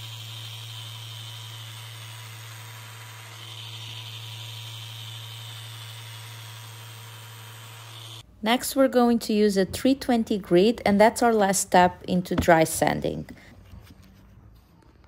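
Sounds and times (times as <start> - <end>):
orbital sander running: 0.0 - 8.2.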